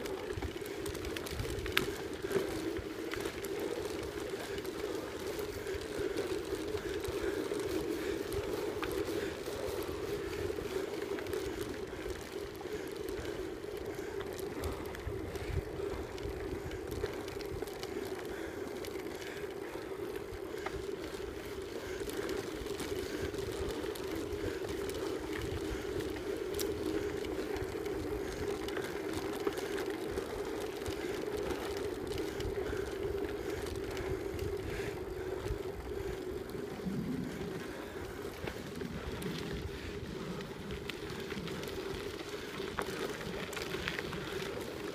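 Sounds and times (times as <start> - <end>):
bicycle hum: 0.0 - 44.9
bike rattling over gravel: 0.0 - 44.9.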